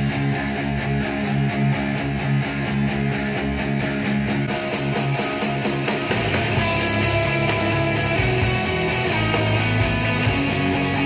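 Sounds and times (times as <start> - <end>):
rock music through speakers: 0.0 - 11.0.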